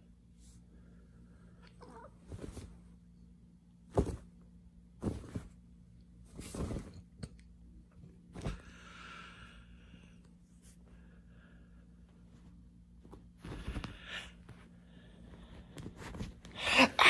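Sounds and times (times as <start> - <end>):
bedcovers rustling: 1.8 - 3.0, 3.8 - 7.3, 12.1 - 16.6
soft thumps of cat pouncing: 3.9 - 4.3.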